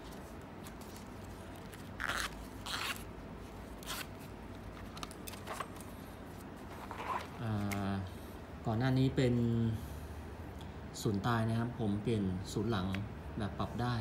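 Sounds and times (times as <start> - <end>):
leather wallet rustling scrapes: 0.0 - 3.1, 6.6 - 7.4.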